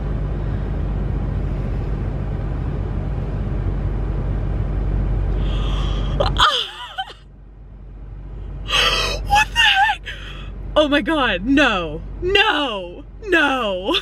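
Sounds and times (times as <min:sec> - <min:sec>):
car engine rumble: 0:00.0 - 0:14.0
woman gasping and squealing: 0:05.5 - 0:06.8, 0:08.7 - 0:10.5.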